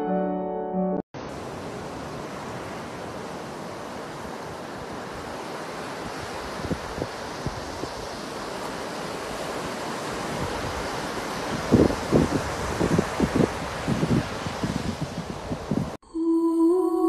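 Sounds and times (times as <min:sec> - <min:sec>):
ocean surf breaking: 0:01.2 - 0:16.0
wind buffeting microphone: 0:09.4 - 0:16.0.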